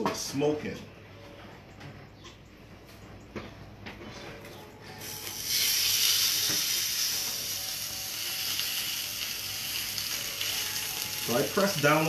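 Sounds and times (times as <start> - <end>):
steak sizzling in a pan: 5.0 - 12.0.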